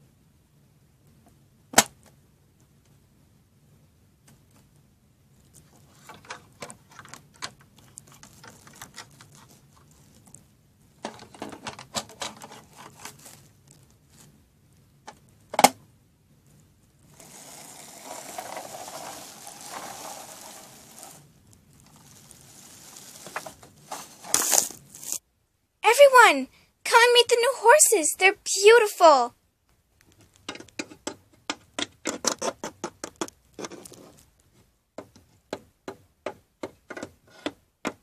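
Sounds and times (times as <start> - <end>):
rustling: 4.2 - 15.6, 16.4 - 25.2, 32.3 - 34.8
plastic toys clicking and tapping: 6.0 - 9.9, 11.0 - 13.2, 30.0 - 34.0, 35.0 - 38.0.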